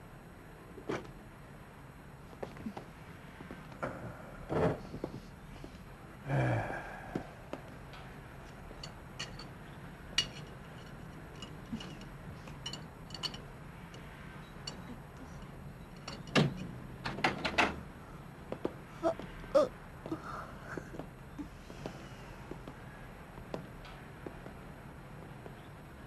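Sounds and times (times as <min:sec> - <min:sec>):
dishes and cutlery clinking: 0:10.2 - 0:13.4
wooden door opening clatter: 0:16.1 - 0:17.8.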